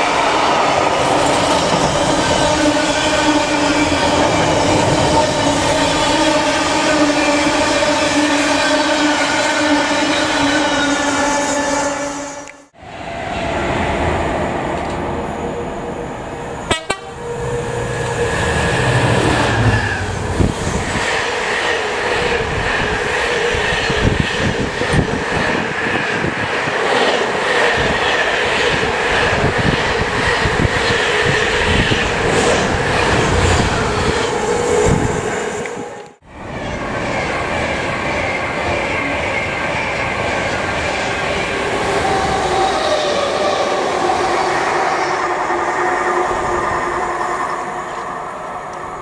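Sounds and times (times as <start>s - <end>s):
freight train rumble: 12.7s - 45.5s.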